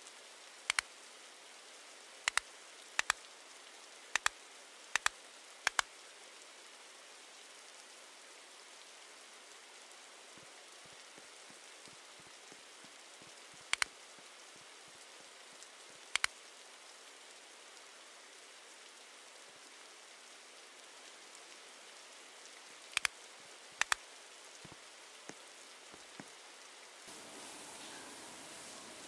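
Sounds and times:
rain hissing: 0.0 - 29.0
sharp double clicks: 22.9 - 23.1, 23.8 - 24.0.

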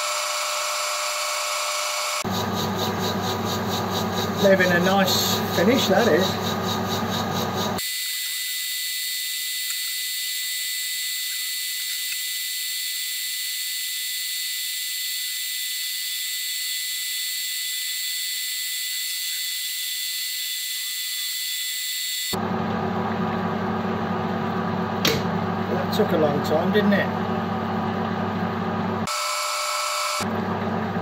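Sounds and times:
metal lathe cutting hiss and whine: 0.0 - 22.4, 29.0 - 30.3.

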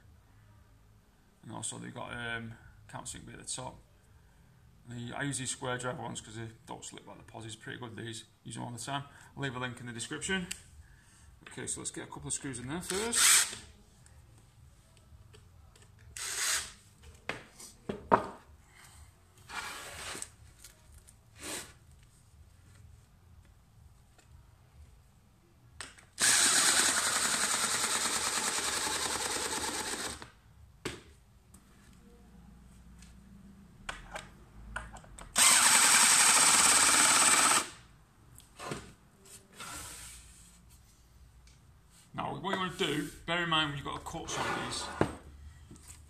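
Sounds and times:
cordless drill driving screw into wood: 12.9 - 13.7, 16.2 - 16.8, 26.2 - 30.3, 35.3 - 37.8.

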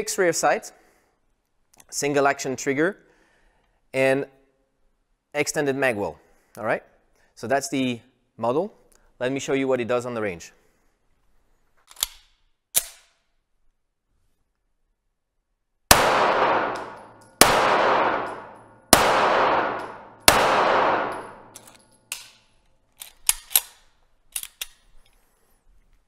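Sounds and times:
metallic clicks of pistol handling: 11.8 - 13.3, 16.7 - 17.4, 21.1 - 25.3
pistol shots reverberating: 15.9 - 21.6.

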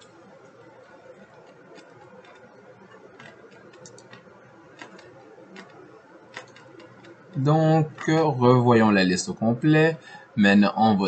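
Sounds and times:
computer mouse clicks: 1.0 - 8.2.

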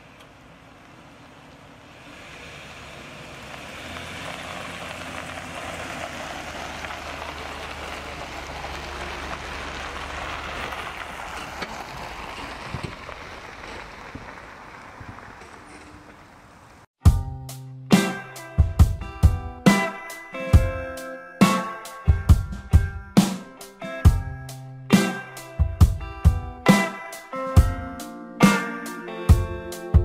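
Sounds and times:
truck engine running low: 0.0 - 16.8
tyres on wet gravel: 0.0 - 16.9.

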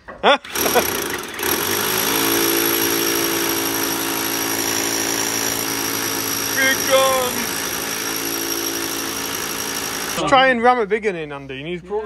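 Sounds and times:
rotary hammer drill into concrete: 0.4 - 10.4
person shouting: 6.5 - 7.5.

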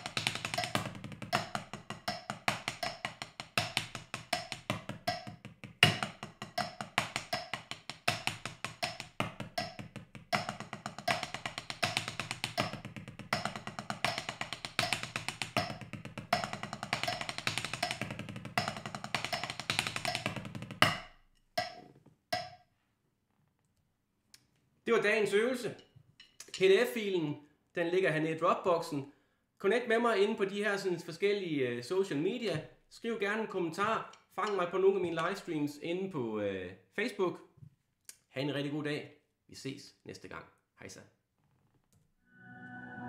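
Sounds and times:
drumsticks on practice pad: 0.0 - 15.8, 16.4 - 21.8, 22.4 - 22.6.

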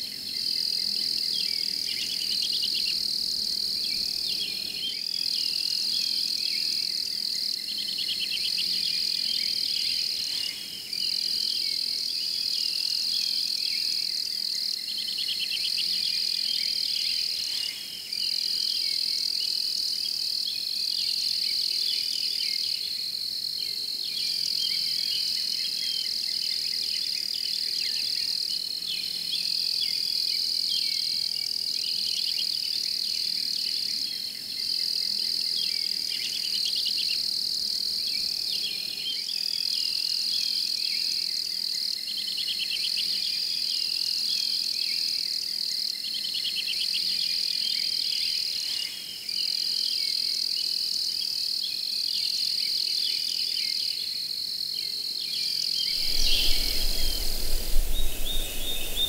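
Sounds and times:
crickets trilling: 55.9 - 59.0.

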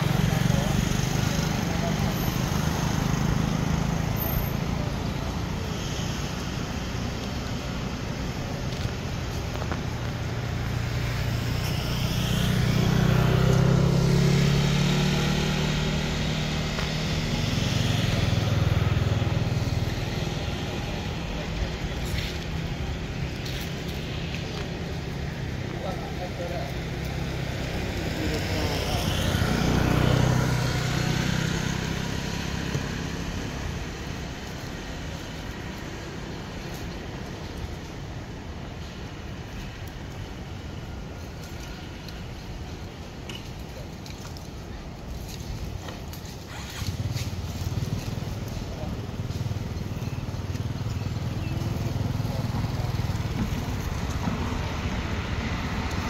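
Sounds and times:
vehicle engine passing: 0.0 - 37.8.

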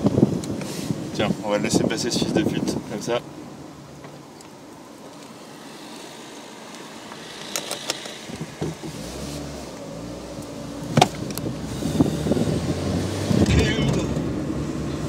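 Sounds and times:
car engine from inside cabin: 4.7 - 15.0.

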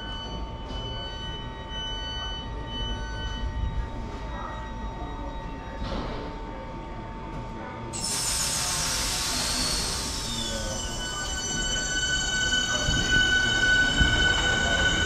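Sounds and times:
train running noise: 8.0 - 15.0
train wheels squealing: 8.0 - 15.0.

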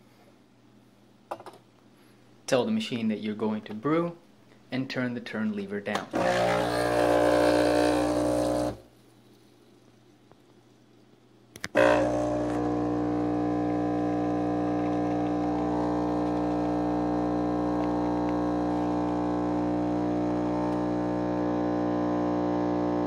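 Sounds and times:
espresso machine pump humming: 6.1 - 8.8, 11.6 - 23.0.

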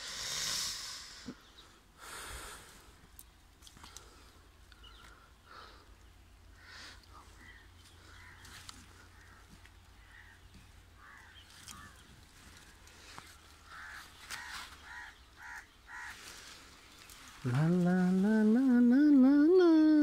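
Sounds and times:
crows cawing: 6.5 - 16.7.

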